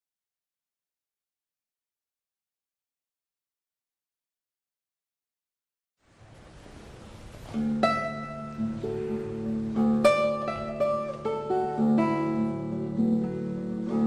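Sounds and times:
plucked acoustic guitar melody: 0:06.7 - 0:14.0.

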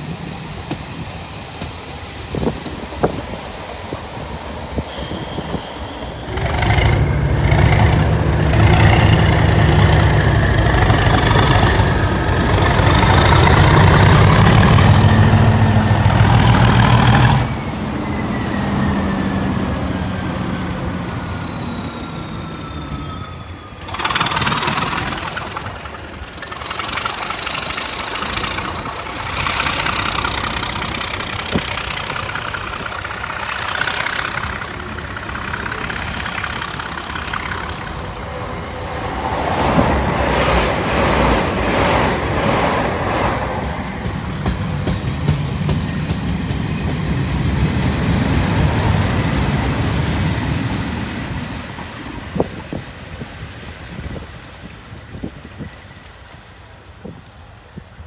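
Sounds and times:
diesel engine low rumble: 0:04.0 - 0:58.0
train wheels clattering over rail joints: 0:23.8 - 0:38.1, 0:39.6 - 0:52.9.

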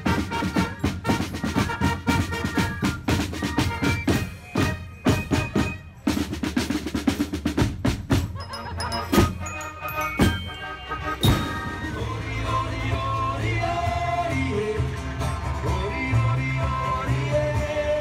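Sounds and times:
trumpets and trombone: 0:00.0 - 0:06.8, 0:08.4 - 0:12.6
snare drums beating rapidly: 0:00.0 - 0:12.0
marching band playing: 0:00.0 - 0:17.8.

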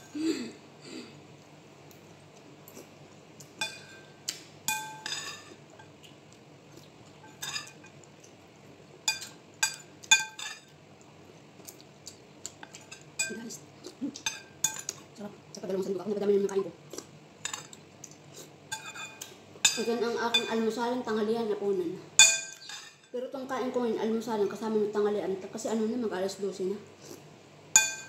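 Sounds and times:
spoon clinking against ceramic bowl: 0:22.2 - 0:23.0, 0:27.8 - 0:28.0.

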